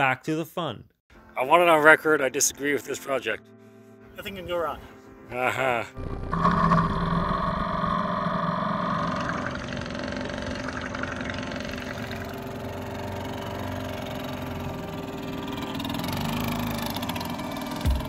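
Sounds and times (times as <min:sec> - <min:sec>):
two-stroke outboard motor running: 0:06.0 - 0:18.0.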